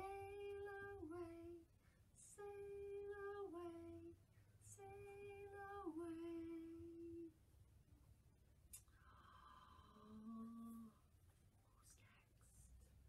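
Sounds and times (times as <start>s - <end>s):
woman singing unaccompanied: 0.0s - 7.4s, 10.0s - 11.0s.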